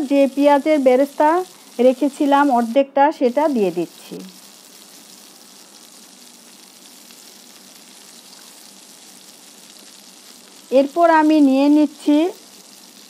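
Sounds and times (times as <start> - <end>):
gravy simmering and bubbling: 3.7 - 10.8.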